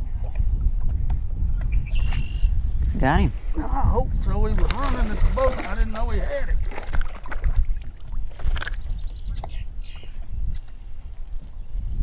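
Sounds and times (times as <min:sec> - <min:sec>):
wind rumble on microphone: 0:00.0 - 0:12.0
fish splashing in water: 0:04.6 - 0:08.9.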